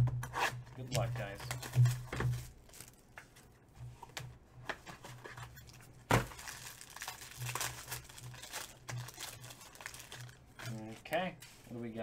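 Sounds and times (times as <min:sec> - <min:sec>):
foil wrapper tearing and crinkling: 0:05.6 - 0:10.9.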